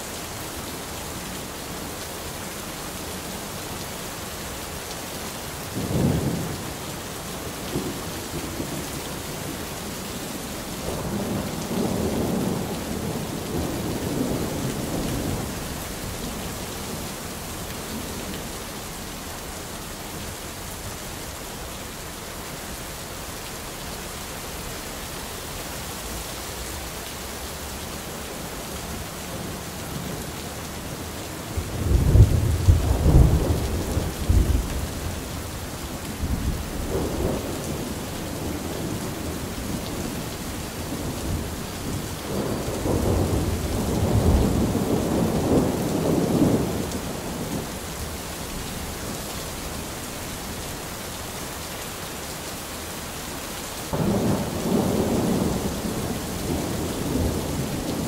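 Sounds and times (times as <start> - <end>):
steady rain: 0.0 - 58.0
thunder rumbling: 28.6 - 47.6, 53.9 - 58.0.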